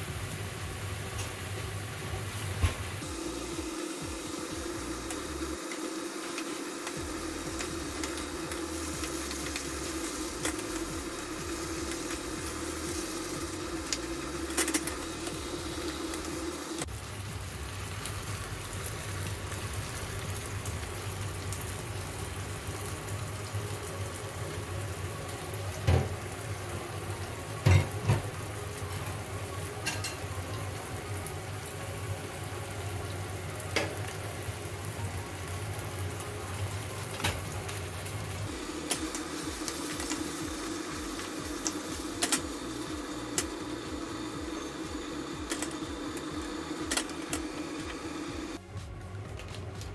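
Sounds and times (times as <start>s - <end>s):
food sizzling in a frying pan: 0.0s - 48.6s.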